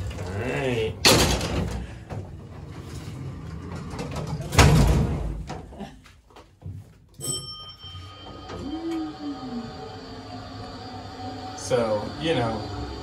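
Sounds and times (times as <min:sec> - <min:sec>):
elevator doors banging shut: 0:01.0 - 0:02.3
brief ringing tone: 0:07.2 - 0:09.8.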